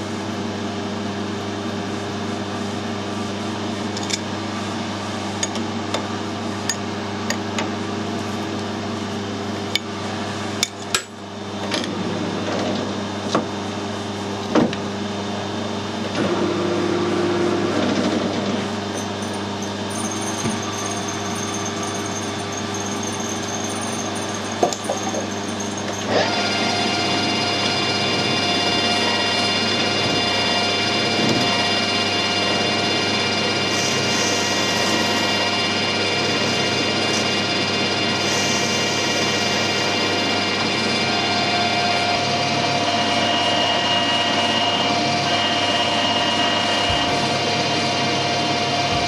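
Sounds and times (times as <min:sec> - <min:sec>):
lathe motor humming: 0:16.0 - 0:49.0
high ringing cutting tone: 0:19.0 - 0:26.1.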